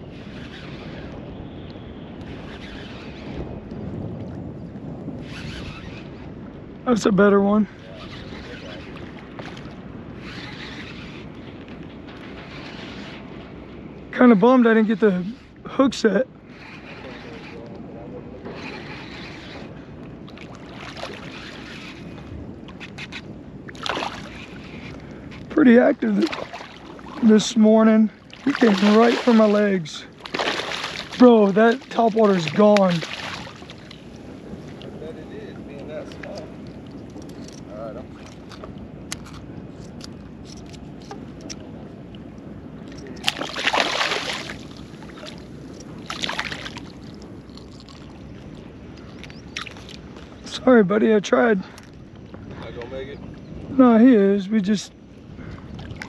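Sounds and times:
wind: 0:00.0 - 0:56.0
water lapping: 0:07.7 - 0:50.8, 0:51.6 - 0:56.0
fish thrashing and splashing: 0:20.3 - 0:22.0, 0:23.7 - 0:24.9, 0:26.1 - 0:27.5, 0:28.2 - 0:34.2, 0:43.1 - 0:50.4
lapping water: 0:28.2 - 0:34.0, 0:42.8 - 0:50.3.

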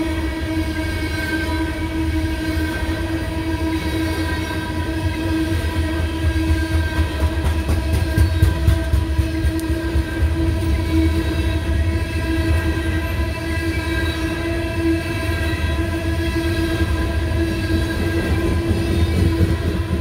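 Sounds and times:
steel wheels rumbling on rail: 0:00.0 - 0:20.0
wheels clicking over rail joints: 0:06.2 - 0:11.3.

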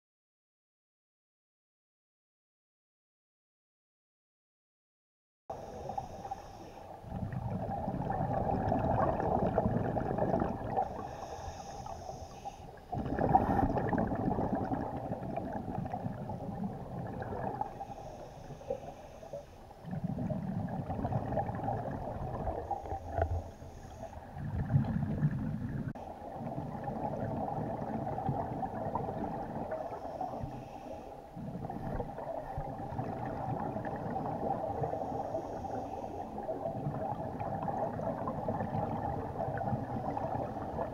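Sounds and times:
muffled underwater rush: 0:05.5 - 0:40.9
underwater bubbling exhalations: 0:07.0 - 0:11.5, 0:12.8 - 0:17.9, 0:19.8 - 0:30.5, 0:31.3 - 0:40.9.

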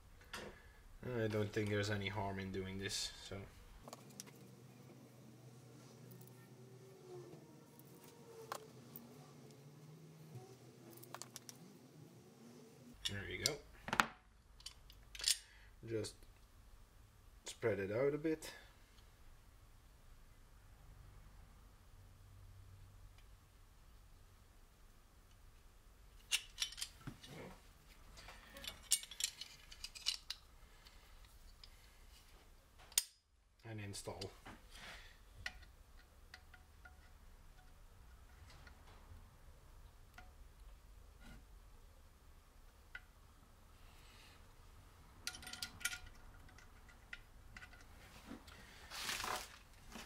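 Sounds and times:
small metal parts clicking: 0:14.6 - 0:15.5, 0:26.2 - 0:27.0, 0:28.5 - 0:31.8, 0:35.4 - 0:38.9, 0:45.2 - 0:47.9.

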